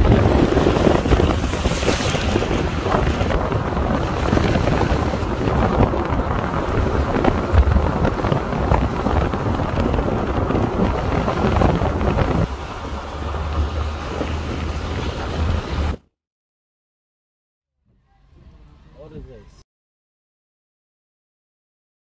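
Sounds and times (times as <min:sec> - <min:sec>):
car driving on wet road: 0:00.0 - 0:16.0
wind buffeting microphone: 0:00.0 - 0:16.0.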